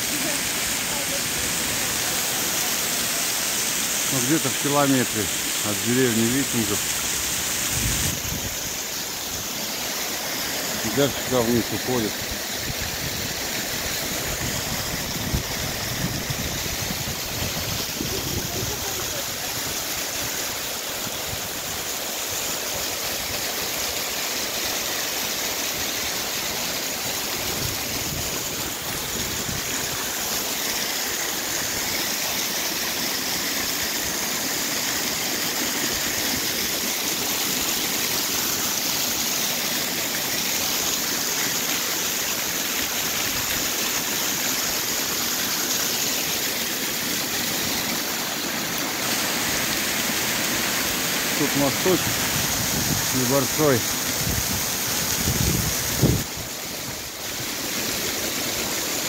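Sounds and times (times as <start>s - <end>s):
waterfall splashing over rocks: 0.0s - 59.0s.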